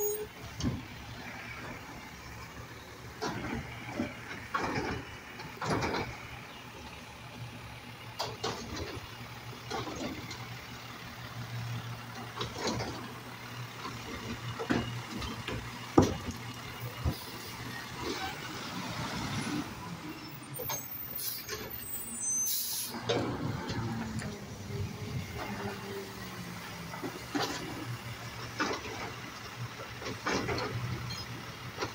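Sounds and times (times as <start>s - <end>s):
garbage truck humming: 0.0s - 31.9s
hydraulic arm clunks and knocks: 3.1s - 6.6s, 13.8s - 17.2s, 26.8s - 31.9s
short hiss: 22.4s - 23.0s.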